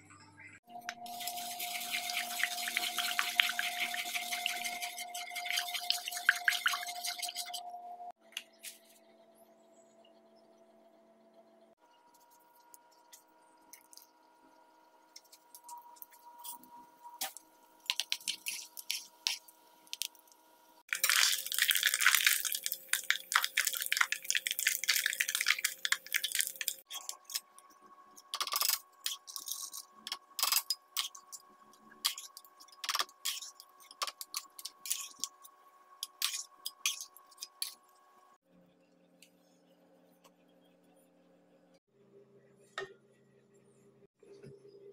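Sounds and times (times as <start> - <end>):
frying pops and crackles: 1.0 - 7.6, 17.2 - 27.6, 28.4 - 37.8
ghee crackling: 20.9 - 27.1.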